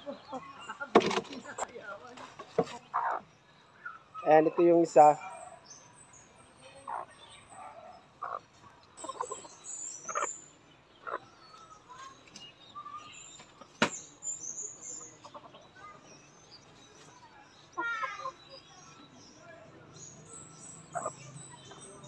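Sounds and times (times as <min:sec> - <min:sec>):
birds chirping: 0:00.0 - 0:22.0
lower bird calls: 0:05.2 - 0:22.0.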